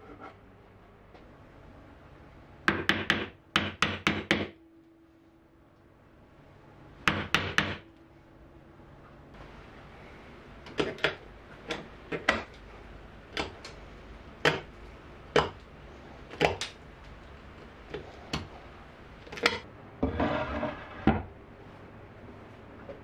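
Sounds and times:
mallet tapping chisel: 0:07.1 - 0:07.8.

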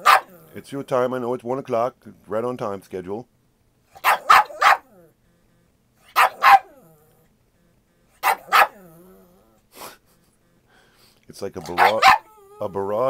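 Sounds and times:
dog barking: 0:00.0 - 0:00.4, 0:04.0 - 0:05.0, 0:06.1 - 0:06.8, 0:08.2 - 0:08.9, 0:11.6 - 0:12.3.

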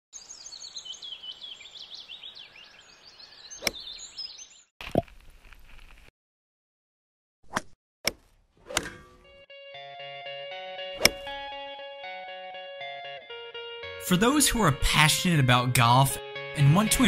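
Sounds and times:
birds chirping: 0:00.2 - 0:04.7
golf club striking ball: 0:11.0 - 0:11.5.

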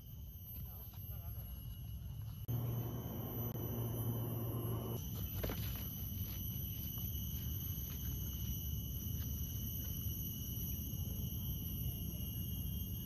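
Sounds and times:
insects droning: 0:00.0 - 0:13.0
low hum: 0:02.5 - 0:06.6.

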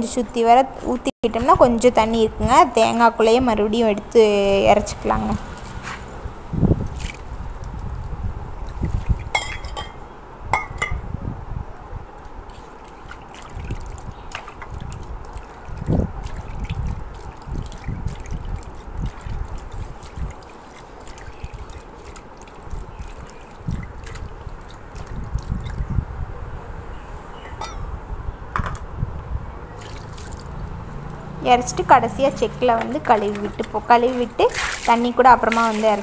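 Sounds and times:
water pouring and sloshing: 0:04.7 - 0:10.0, 0:12.2 - 0:26.0, 0:29.7 - 0:31.2, 0:32.4 - 0:36.0
steel bowl clinking on stone: 0:09.3 - 0:10.0, 0:27.5 - 0:27.8.

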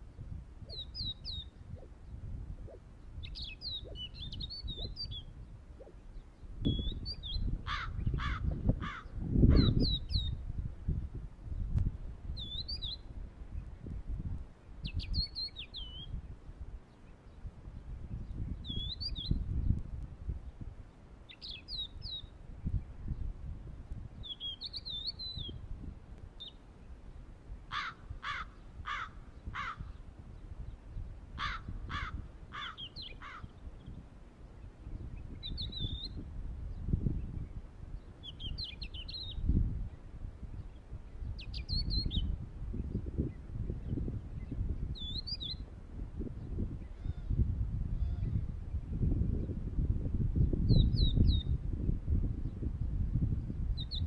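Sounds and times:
wind on microphone: 0:00.0 - 0:54.0
birds chirping: 0:00.6 - 0:10.4, 0:26.4 - 0:45.6.

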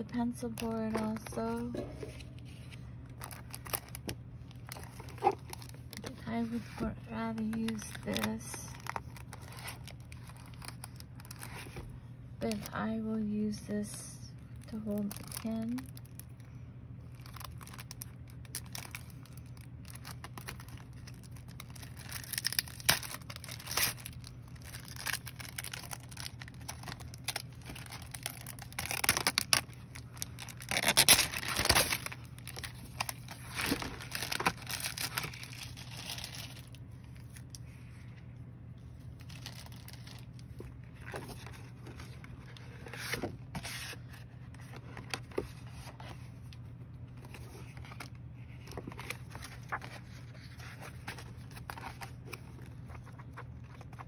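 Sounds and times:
packaging tearing and crinkling: 0:03.2 - 0:06.1, 0:07.5 - 0:11.8, 0:17.1 - 0:37.6, 0:39.2 - 0:44.0.

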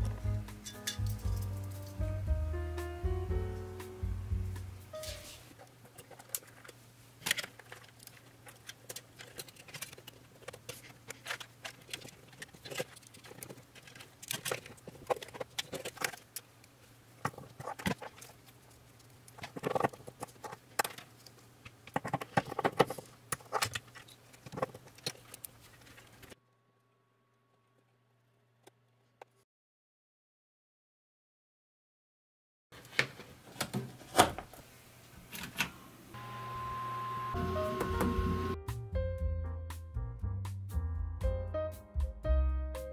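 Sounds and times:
clicks and rustles of wiring: 0:05.0 - 0:26.4.

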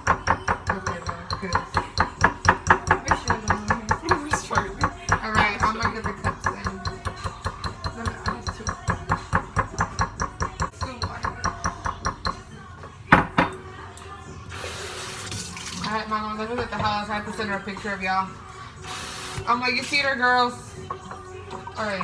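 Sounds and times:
utensil clicking against bowl: 0:00.8 - 0:12.4.

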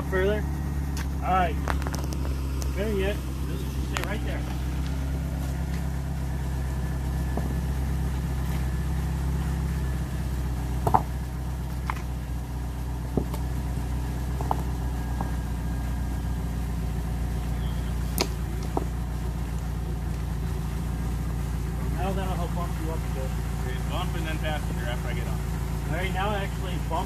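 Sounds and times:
engine idling with low hum: 0:00.0 - 0:27.0
sharp knocks and clicks: 0:10.8 - 0:11.1, 0:13.1 - 0:13.5, 0:14.4 - 0:15.4.

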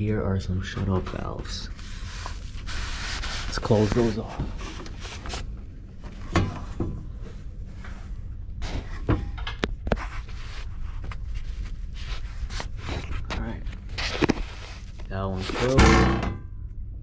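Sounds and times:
steady low hum: 0:00.0 - 0:17.0
knocks and clicks of pipes: 0:15.7 - 0:16.6.

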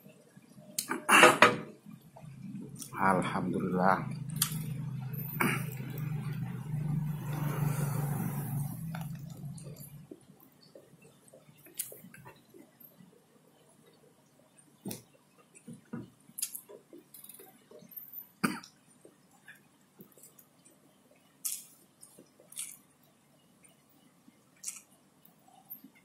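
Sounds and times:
wet chewing clicks: 0:04.2 - 0:06.4, 0:08.9 - 0:12.5, 0:14.8 - 0:17.9, 0:21.4 - 0:22.9, 0:24.6 - 0:25.4
lip smacks: 0:04.4 - 0:04.6, 0:24.6 - 0:24.9.

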